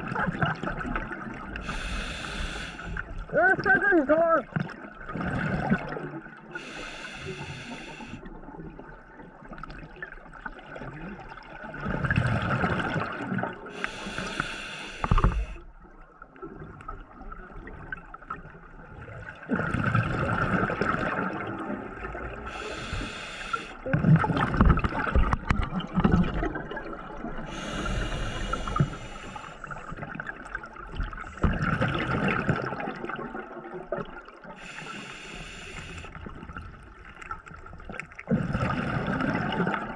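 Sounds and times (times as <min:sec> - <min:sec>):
regulator inhalation hiss: 0:01.6 - 0:03.0, 0:06.6 - 0:08.2, 0:13.7 - 0:15.6, 0:22.5 - 0:23.8, 0:27.5 - 0:29.8, 0:34.6 - 0:36.2
gurgling exhaled bubbles: 0:04.5 - 0:15.6, 0:16.4 - 0:39.9.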